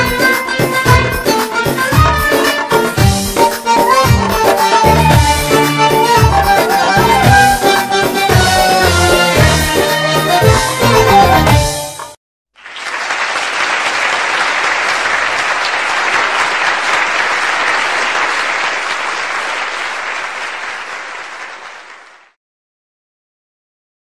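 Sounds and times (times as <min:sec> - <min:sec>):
music: 0:00.0 - 0:12.2
audience applauding: 0:03.8 - 0:22.4.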